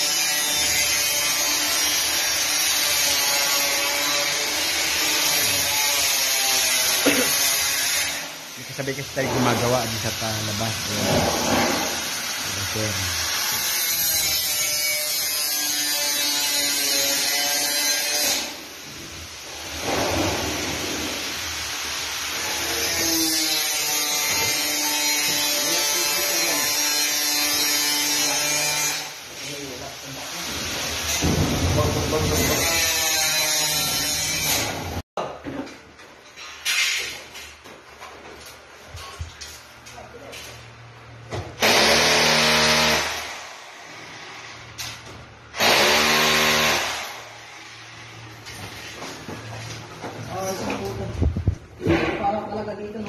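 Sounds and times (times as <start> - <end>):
power drill drilling into wall: 41.6 - 43.4, 45.5 - 47.2.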